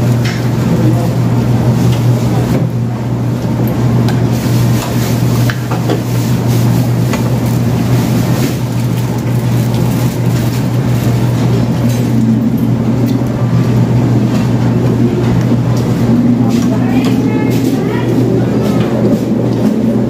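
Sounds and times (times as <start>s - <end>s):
low room hum: 0.0s - 20.0s
crunching fried chicken: 4.3s - 12.0s.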